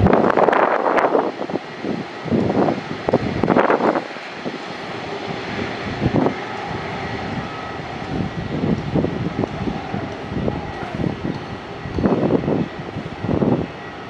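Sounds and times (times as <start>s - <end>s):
faint high whine: 0.0s - 14.0s
jet engines roaring: 0.0s - 14.0s
wind bumps on microphone: 0.0s - 14.0s.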